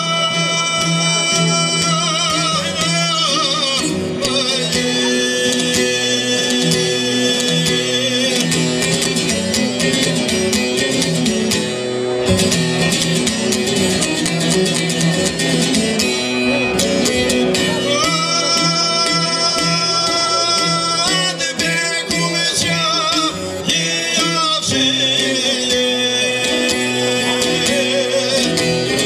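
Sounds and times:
man singing: 0:00.0 - 0:11.2, 0:16.8 - 0:29.0
plucked long-necked lute: 0:00.0 - 0:29.0.

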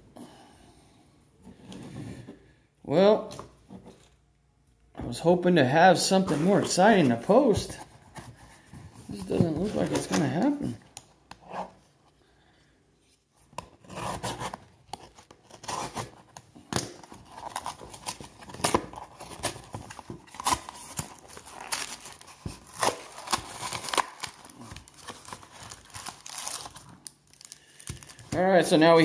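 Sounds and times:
card pack wrapper tearing: 0:15.4 - 0:28.4.

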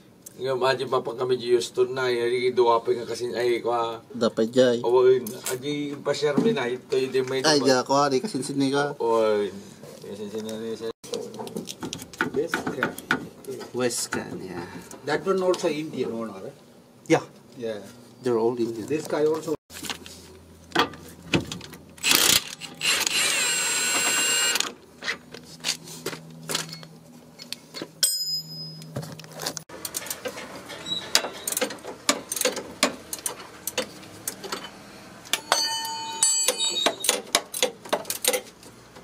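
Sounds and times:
wrench clinking on bolt: 0:33.2 - 0:38.4
ringing clicks: 0:35.3 - 0:37.3.

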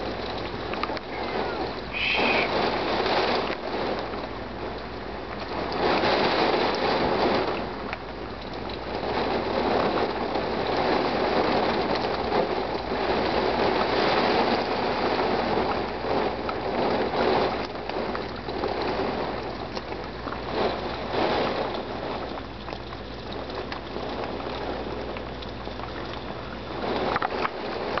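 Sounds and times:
wind gusts: 0:00.0 - 0:07.8
heavy rain: 0:00.0 - 0:28.0.

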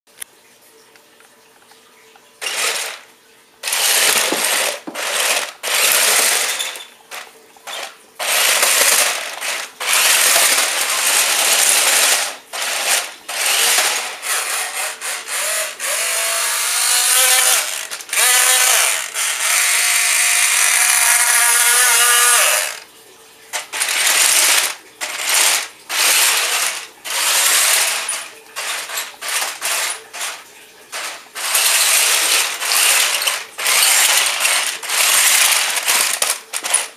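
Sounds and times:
toy car motor whirring: 0:02.4 - 0:22.9, 0:23.5 - 0:36.9.

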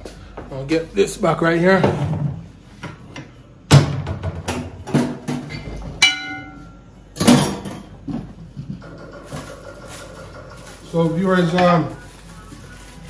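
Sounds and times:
metal pot ringing: 0:06.0 - 0:06.9.

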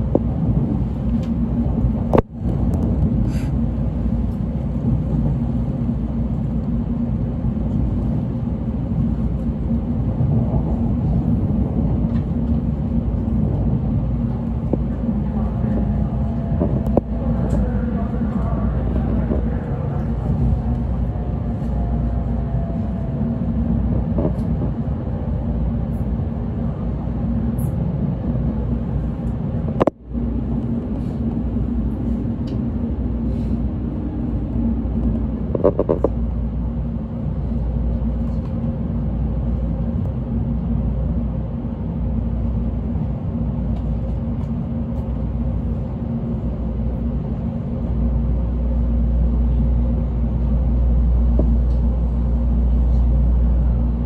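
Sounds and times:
train cabin low rumble: 0:00.0 - 0:54.0.

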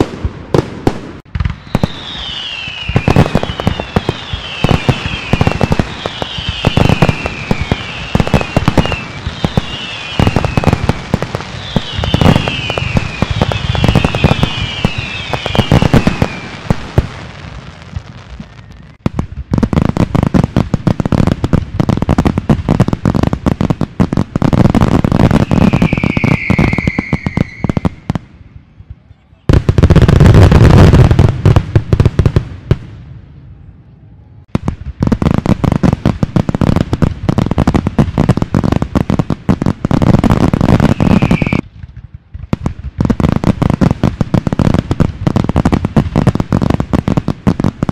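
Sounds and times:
firework bangs and crackling: 0:00.0 - 0:33.6, 0:34.4 - 0:47.9
falling firework whistles: 0:00.8 - 0:19.1, 0:25.2 - 0:28.3, 0:40.6 - 0:41.7.

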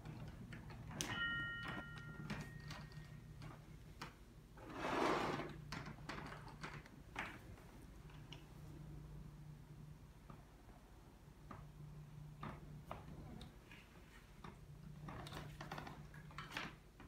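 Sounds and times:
low steady hum: 0:00.0 - 0:16.5
bell-like ring: 0:01.0 - 0:03.0.

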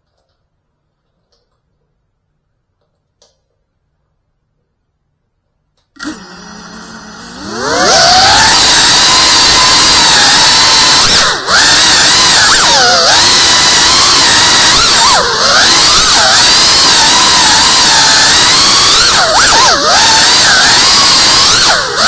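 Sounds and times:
quadcopter motors whining: 0:06.0 - 0:22.0.

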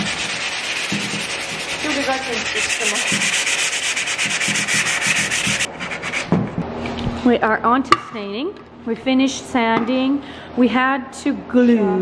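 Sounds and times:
sandpaper rubbing on wood: 0:00.0 - 0:06.3.

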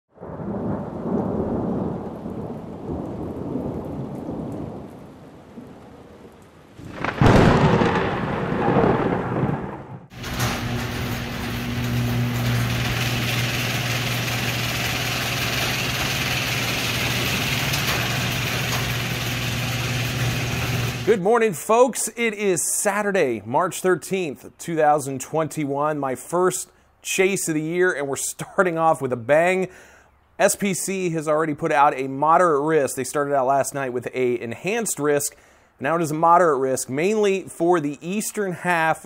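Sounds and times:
loud crack of thunder: 0:00.2 - 0:06.1, 0:06.8 - 0:21.1
thunder rumbling: 0:00.2 - 0:21.2
low mechanical hum with hiss: 0:10.2 - 0:21.1.

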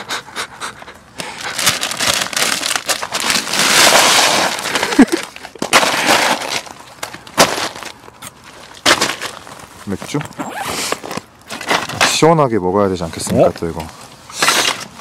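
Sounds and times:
plastic bag crinkling: 0:01.2 - 0:12.3
ice cubes clattering into bucket: 0:01.6 - 0:06.8.

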